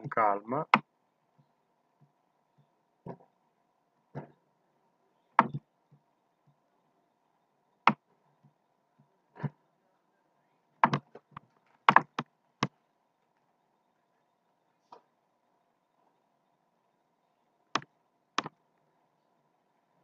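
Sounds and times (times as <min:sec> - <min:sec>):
faint steady hum: 0:00.0 - 0:20.0.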